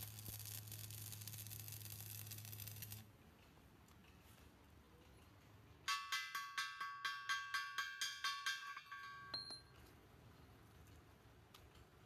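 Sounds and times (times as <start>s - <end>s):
ringing metallic chime strikes: 5.9s - 9.7s.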